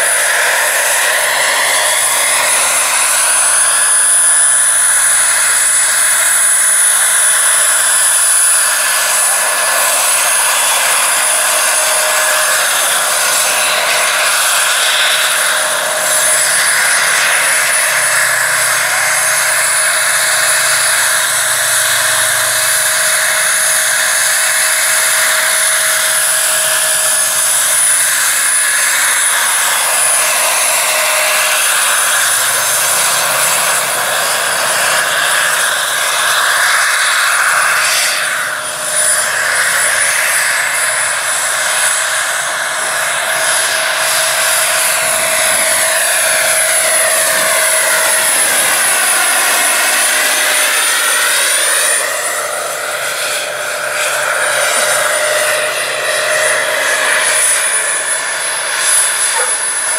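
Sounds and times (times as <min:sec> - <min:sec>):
model helicopter turbine whine: 0:00.0 - 0:59.9
rotor rushing noise: 0:00.0 - 0:59.9.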